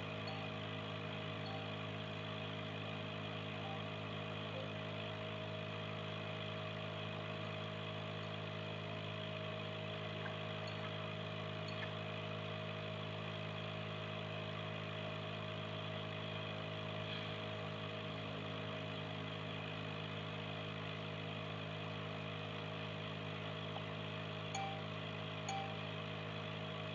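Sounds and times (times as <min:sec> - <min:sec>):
air pump humming: 0:00.0 - 0:04.9, 0:09.6 - 0:12.5, 0:23.6 - 0:25.9.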